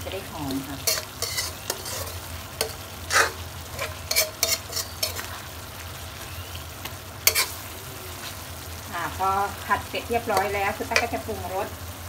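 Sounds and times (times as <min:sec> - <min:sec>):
food sizzling in a pan: 0:00.0 - 0:12.0
spatula scraping a pan: 0:00.8 - 0:05.6, 0:07.2 - 0:08.5.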